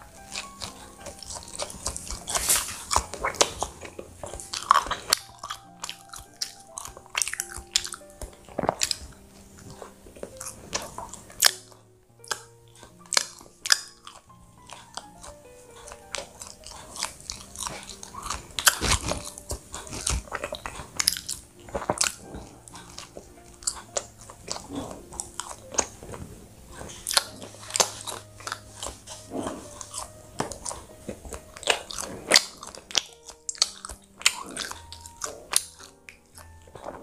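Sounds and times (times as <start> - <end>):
chewing bread roll: 0.0 - 37.0.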